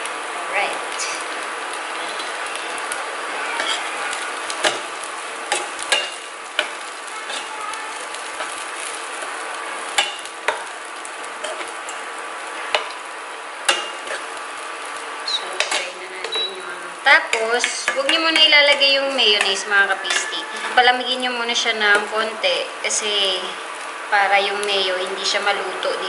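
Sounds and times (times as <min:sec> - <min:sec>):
tofu sizzling in a frying pan: 0:00.0 - 0:26.0
metal spatula scraping pan: 0:01.9 - 0:12.0, 0:17.3 - 0:21.2.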